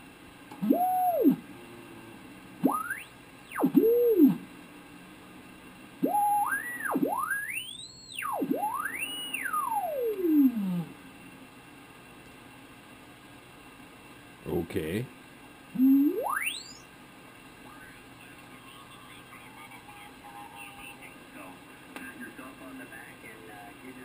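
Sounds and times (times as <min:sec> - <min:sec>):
radio heterodyne whistles: 0:02.6 - 0:04.4, 0:06.0 - 0:10.6, 0:15.8 - 0:16.8.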